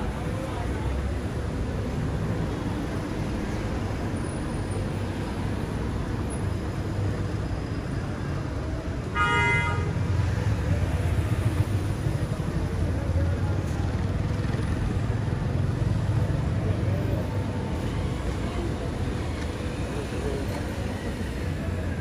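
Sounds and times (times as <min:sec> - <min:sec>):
street traffic rumble: 0:00.0 - 0:22.0
vehicle horn honk: 0:09.2 - 0:09.9.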